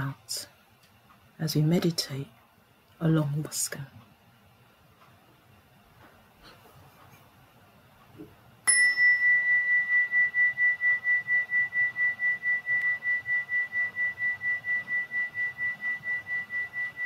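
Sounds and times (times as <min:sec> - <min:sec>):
meditation chime ringing: 0:08.7 - 0:16.6.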